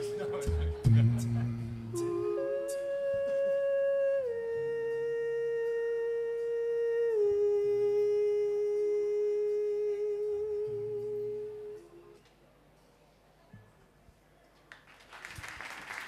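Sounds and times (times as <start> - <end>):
looped hummed vocal note: 0.0 - 12.2.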